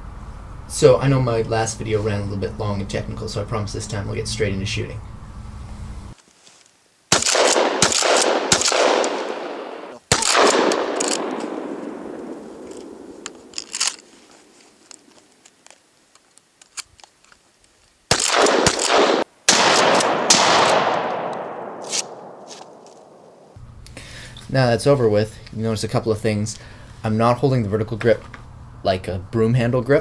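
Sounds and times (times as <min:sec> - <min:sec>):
shotgun shots echoing: 0:07.1 - 0:14.2, 0:18.1 - 0:23.6.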